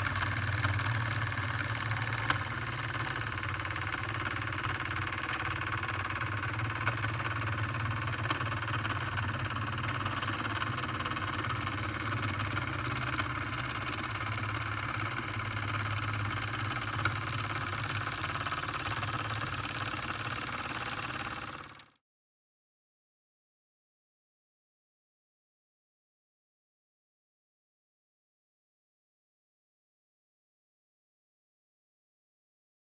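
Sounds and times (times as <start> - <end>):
turntable motor hum: 0.0 - 21.8.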